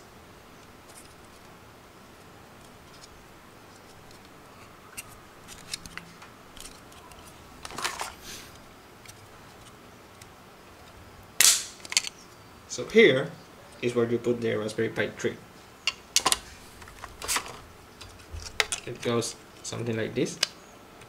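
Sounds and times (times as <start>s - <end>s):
plastic rustle: 5.0s - 8.6s.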